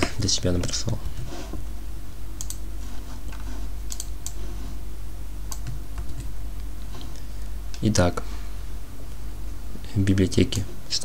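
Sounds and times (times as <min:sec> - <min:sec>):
keyboard and mouse clicks: 0:00.0 - 0:01.1, 0:02.4 - 0:02.6, 0:03.3 - 0:04.4, 0:05.5 - 0:06.3.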